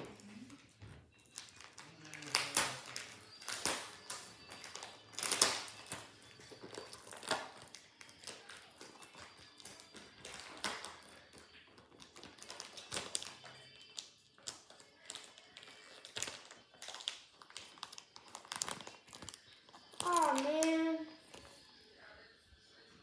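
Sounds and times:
faint music: 0.0s - 23.0s.

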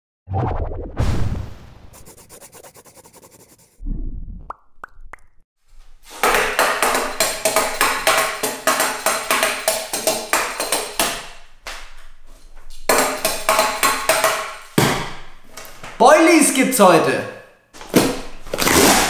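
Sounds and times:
music with tapping percussive beat: 6.2s - 11.4s, 12.9s - 14.6s.

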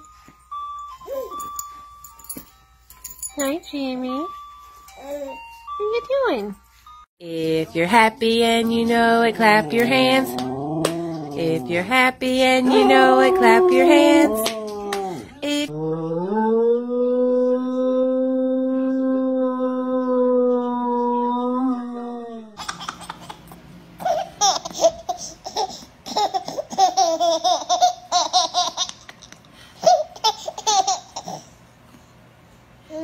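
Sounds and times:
dog howling: 10.2s - 11.6s, 12.6s - 22.6s
baby giggling: 22.6s - 31.4s.

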